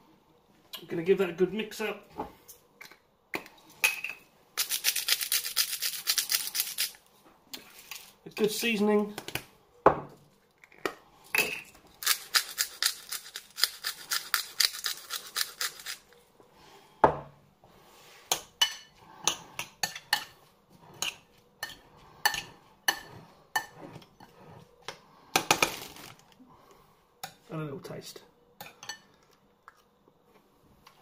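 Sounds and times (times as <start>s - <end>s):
seasoning mill grinding: 4.6s - 7.0s, 12.0s - 16.1s.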